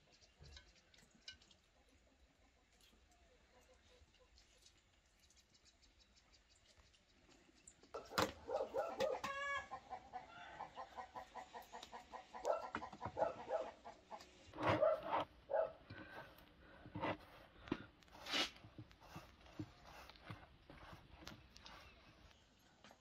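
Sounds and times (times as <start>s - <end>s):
chickens clucking: 8.0s - 15.7s.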